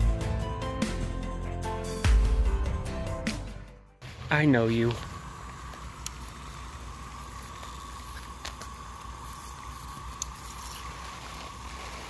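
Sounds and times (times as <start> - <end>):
sprinkler water pattering on grass: 4.8 - 12.0.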